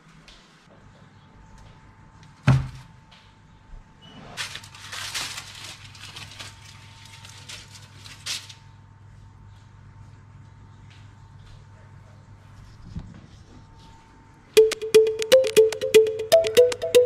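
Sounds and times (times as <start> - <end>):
foil crinkling and rustling: 4.4 - 8.7.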